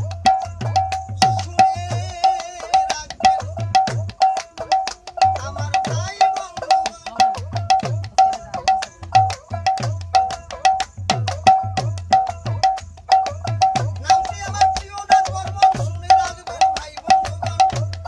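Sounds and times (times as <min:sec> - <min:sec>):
person singing: 0:01.2 - 0:10.7.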